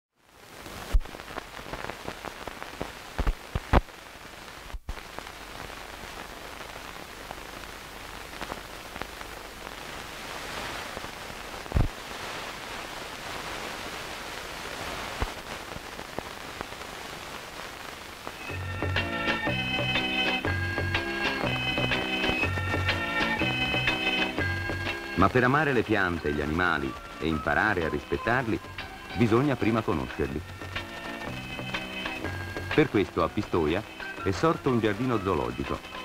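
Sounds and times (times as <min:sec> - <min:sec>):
film soundtrack hiss and crackle: 0:00.1 - 0:36.0
clicks and pops: 0:02.8 - 0:03.9, 0:11.7 - 0:12.0.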